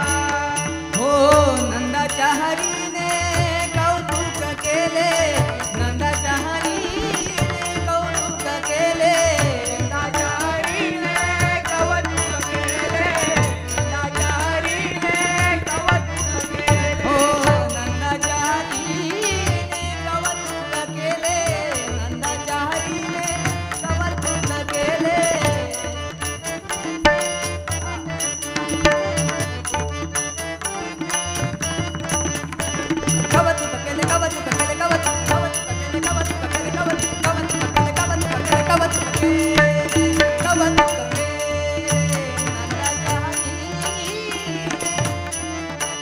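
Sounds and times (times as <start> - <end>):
devotional melody: 0.0 - 46.0
jingling cymbals: 21.3 - 46.0.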